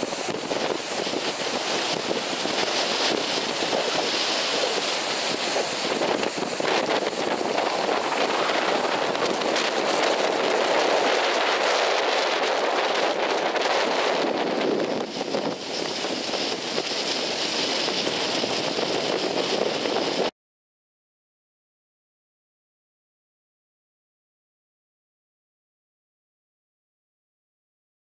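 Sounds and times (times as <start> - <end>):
sea surf breaking on rocks: 0.0 - 20.3
wind buffeting microphone: 0.0 - 20.3.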